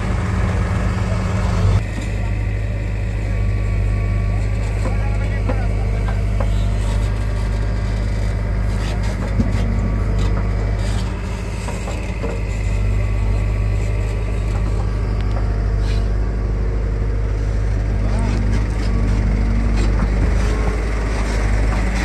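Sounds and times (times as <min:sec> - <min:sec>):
diesel engine under load: 0:00.0 - 0:22.0.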